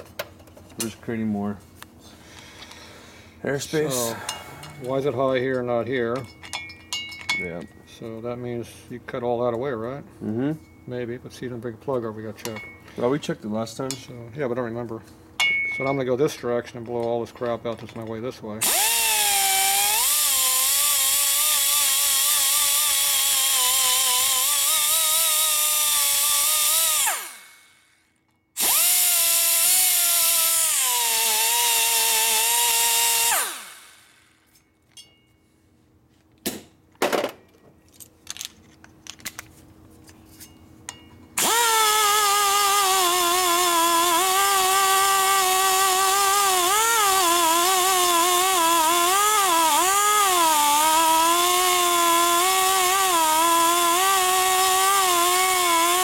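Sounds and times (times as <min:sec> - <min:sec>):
die grinder whining: 0:18.6 - 0:27.8, 0:28.6 - 0:34.3, 0:41.4 - 0:56.0.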